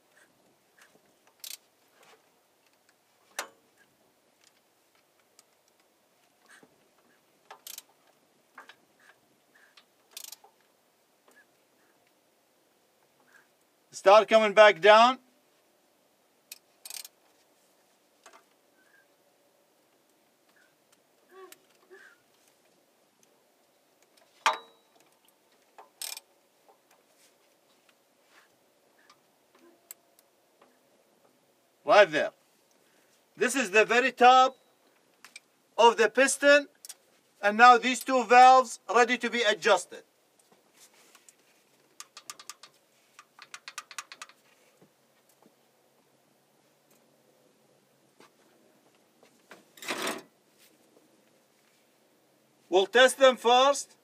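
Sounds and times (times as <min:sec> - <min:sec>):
sharp metal clink: 0:24.5 - 0:25.0
short rustle: 0:27.0 - 0:28.6, 0:40.4 - 0:42.0, 0:44.3 - 0:45.3
metal rod clicking and tapping: 0:42.0 - 0:44.4.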